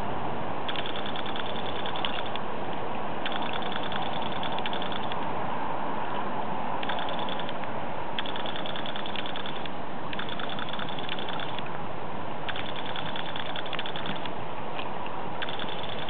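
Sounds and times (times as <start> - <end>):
rapid high clicking buzz: 0.7 - 2.5, 3.2 - 5.3, 6.8 - 7.6, 8.2 - 11.7, 12.5 - 14.4, 15.4 - 16.0.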